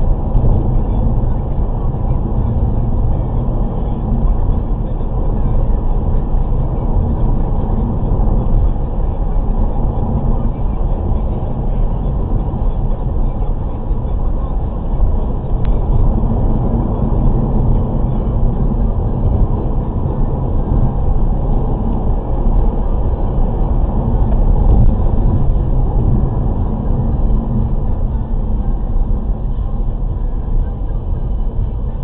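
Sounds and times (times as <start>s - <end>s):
car road noise: 0.0s - 32.0s.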